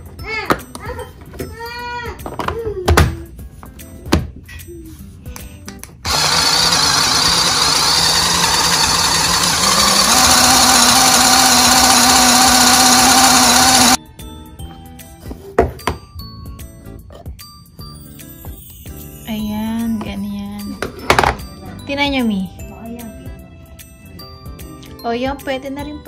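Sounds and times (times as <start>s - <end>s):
faint background music: 0.0s - 6.1s, 14.0s - 26.0s
electric food chopper grinding: 6.1s - 14.0s.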